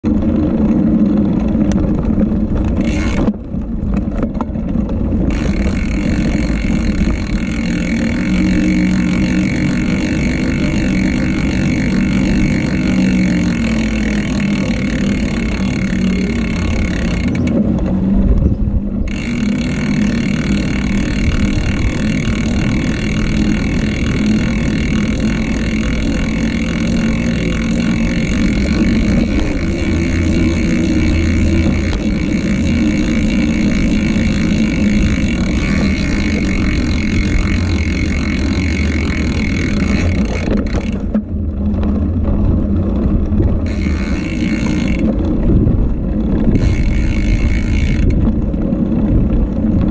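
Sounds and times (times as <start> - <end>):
wind and road rumble: 0.0 - 49.9.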